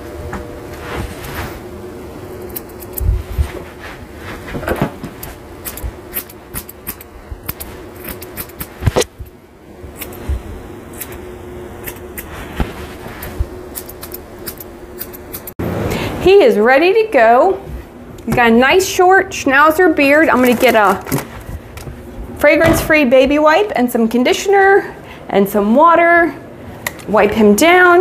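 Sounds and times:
faint steady hum: 0.0s - 28.0s
shears snipping hair: 2.4s - 4.4s, 5.0s - 15.6s, 20.2s - 21.3s.

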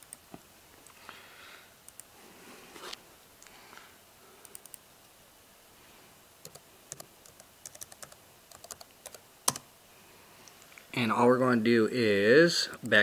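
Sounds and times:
laptop keyboard typing: 0.0s - 0.3s, 4.4s - 4.8s, 6.4s - 9.7s.

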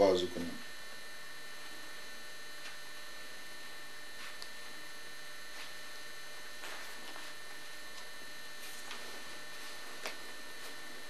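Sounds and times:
electrical mains hum and hiss: 0.0s - 11.0s.

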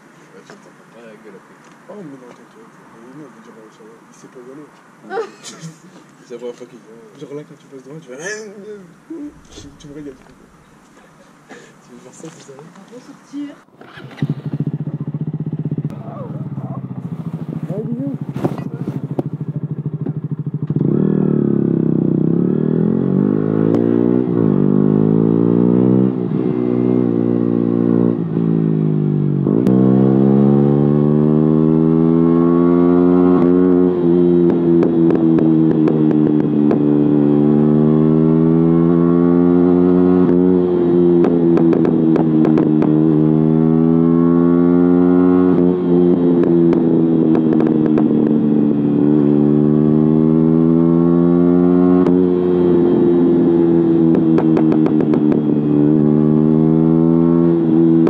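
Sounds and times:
motorcycle engine revving: 3.0s - 58.0s.

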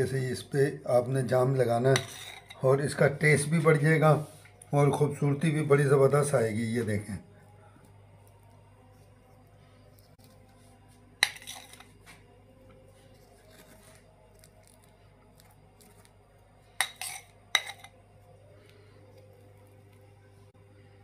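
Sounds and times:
faint steady hum: 0.0s - 21.0s
metal spatula clinking on dish: 16.8s - 18.0s.

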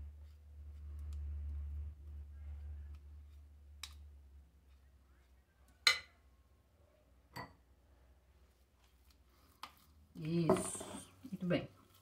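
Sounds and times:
low hum: 0.0s - 5.7s.

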